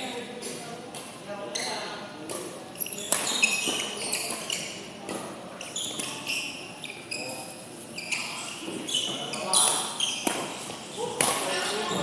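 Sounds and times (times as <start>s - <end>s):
shoes squeaking on court floor: 0.4s - 12.0s
racket hitting shuttlecock: 3.1s - 4.4s, 9.7s - 10.6s, 11.2s - 11.5s.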